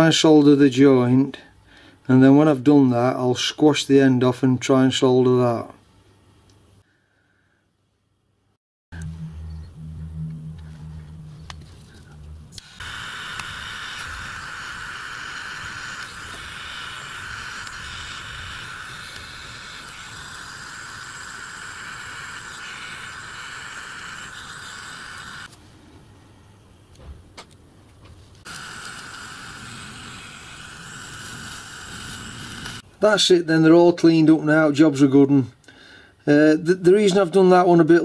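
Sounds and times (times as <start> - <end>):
broken low hum: 8.9 - 32.9
gas torch hissing: 12.5 - 25.6, 28.4 - 32.8.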